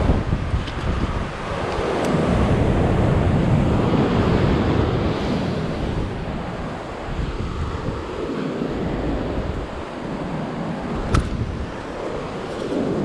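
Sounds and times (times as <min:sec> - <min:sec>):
surf washing against rocks: 0:00.0 - 0:13.0
wind buffeting microphone: 0:00.0 - 0:13.0
carabiner clicks: 0:00.5 - 0:01.0, 0:11.0 - 0:11.4.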